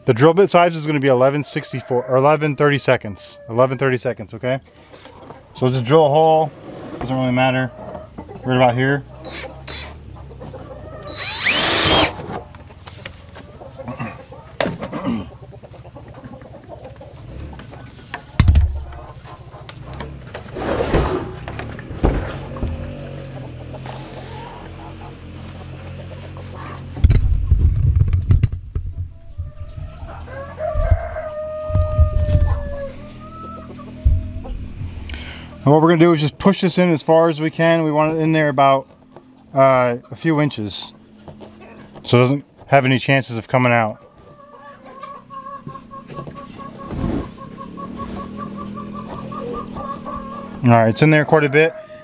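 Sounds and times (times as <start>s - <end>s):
chickens clucking: 0.0s - 27.9s, 28.7s - 52.0s
rooster crowing: 1.4s - 3.8s, 10.6s - 12.2s, 29.5s - 34.4s, 47.6s - 52.0s
cordless drill boring plastic: 11.1s - 12.2s
low thumps and rumbling: 20.0s - 22.9s, 27.0s - 29.8s, 31.7s - 32.6s, 34.0s - 35.0s.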